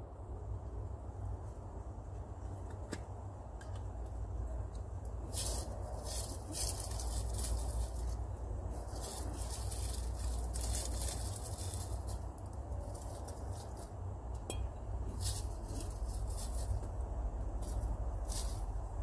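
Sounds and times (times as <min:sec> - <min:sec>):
glass jars clinking: 0:14.5 - 0:14.8.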